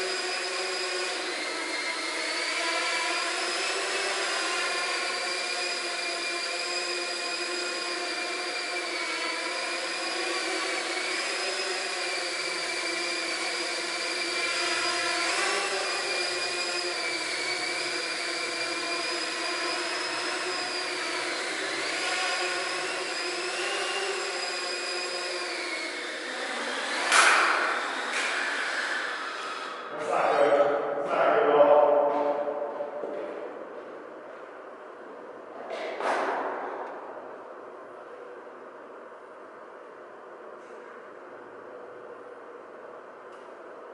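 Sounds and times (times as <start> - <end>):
drone motors whining: 0.0 - 29.9.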